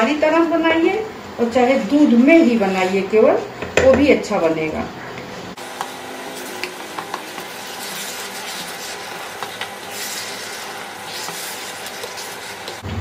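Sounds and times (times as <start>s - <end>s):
wooden spatula scraping a pan: 1.6s - 3.6s, 5.3s - 12.8s
food sizzling in a pan: 5.5s - 12.8s.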